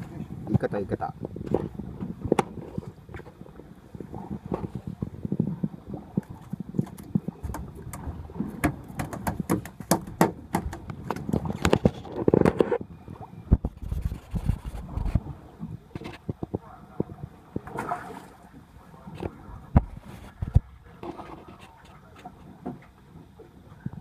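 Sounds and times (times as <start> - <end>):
knocks and taps on deck: 8.6 - 10.8.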